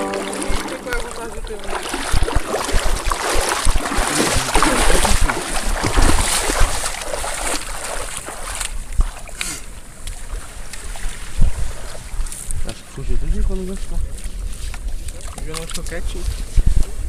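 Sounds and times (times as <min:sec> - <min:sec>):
water splashing in a creek: 0:00.0 - 0:13.0, 0:13.7 - 0:16.6.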